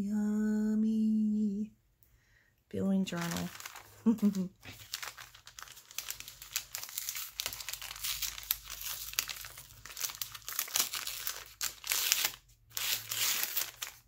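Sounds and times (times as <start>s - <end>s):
paper bag crinkling: 3.1s - 14.0s.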